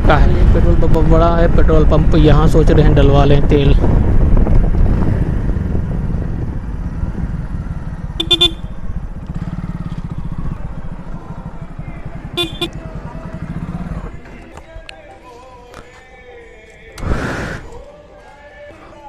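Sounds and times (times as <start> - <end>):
motorcycle engine running: 0.0 - 14.4
motorcycle horn toots: 8.0 - 9.0, 12.3 - 12.8.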